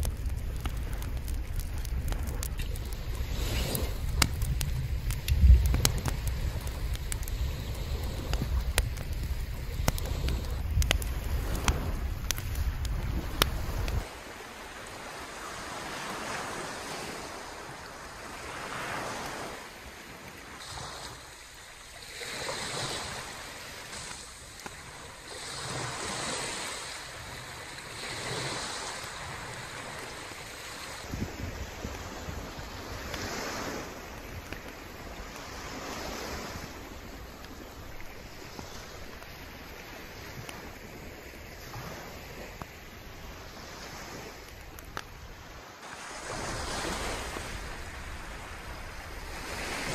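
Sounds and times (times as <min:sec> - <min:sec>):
wind buffeting microphone: 0:00.0 - 0:14.1, 0:25.2 - 0:45.4
sea waves breaking on beach: 0:00.0 - 0:49.9
wind blowing: 0:00.0 - 0:49.9.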